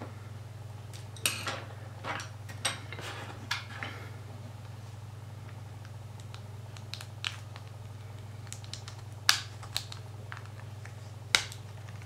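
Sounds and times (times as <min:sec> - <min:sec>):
steady low hum: 0:00.0 - 0:12.0
plastic clicks and snaps: 0:08.4 - 0:10.6.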